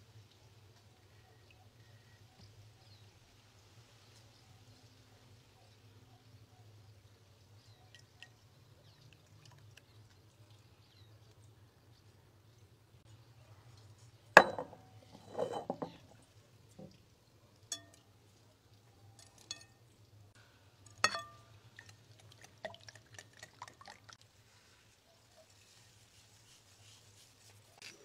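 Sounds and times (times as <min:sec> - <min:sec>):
whisk clinking against glass bowl: 0:17.7 - 0:18.0, 0:21.0 - 0:21.4.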